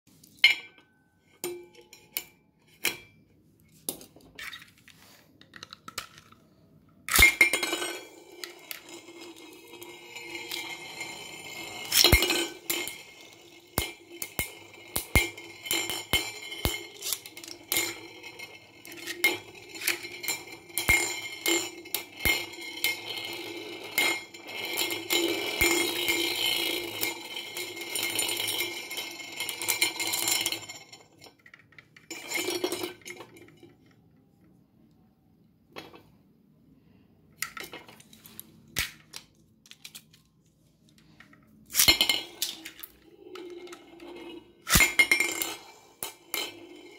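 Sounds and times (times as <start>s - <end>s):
spinning tops clacking together: 7.1s - 23.4s, 41.7s - 43.8s, 44.5s - 46.9s
metallic whirr of spinning tops: 7.1s - 31.2s, 41.1s - 46.9s.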